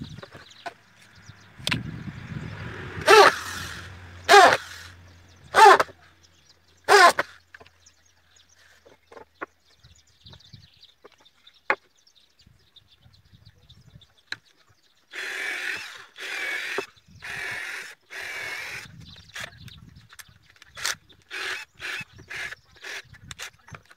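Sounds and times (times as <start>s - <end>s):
cordless drill drilling into wood: 2.8s - 5.9s, 6.9s - 7.3s, 15.1s - 19.5s, 20.7s - 23.6s
electric drill running: 3.0s - 5.8s, 15.2s - 19.5s, 20.8s - 23.5s.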